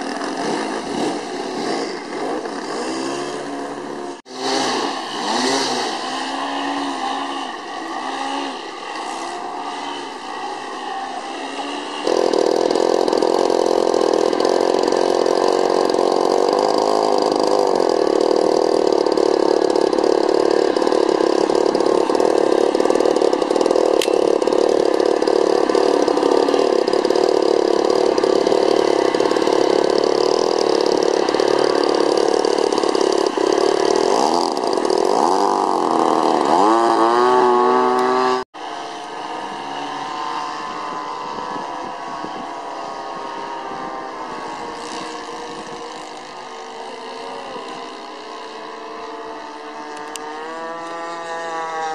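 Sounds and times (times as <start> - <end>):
model airplane engines droning: 0.0 - 51.9.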